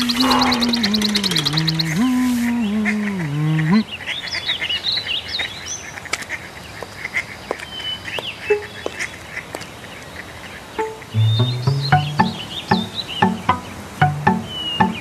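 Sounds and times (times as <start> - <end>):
high bird-like chirps: 8.3 - 9.2, 10.8 - 15.0.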